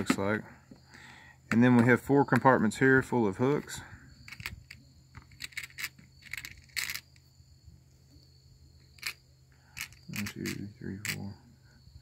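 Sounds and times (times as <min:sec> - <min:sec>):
fishing hooks and plastic lids clicking: 0:04.3 - 0:07.2, 0:09.8 - 0:11.3.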